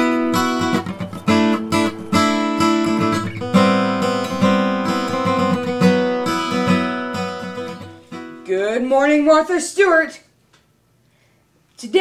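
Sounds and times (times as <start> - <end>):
acoustic guitar strumming: 0.0 - 9.4.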